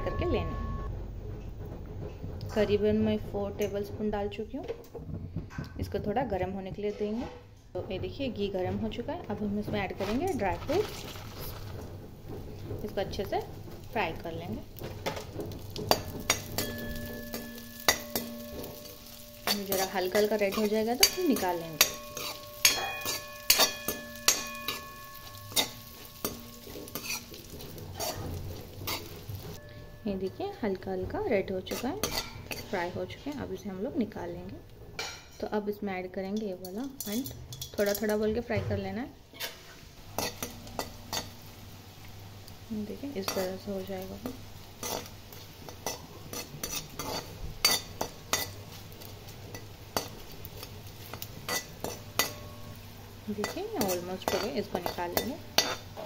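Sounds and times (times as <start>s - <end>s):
nuts sizzling in hot fat: 9.3s - 34.7s, 39.3s - 56.0s
spatula scraping metal pan: 9.8s - 30.0s, 31.4s - 33.4s, 39.3s - 41.4s, 43.3s - 56.0s.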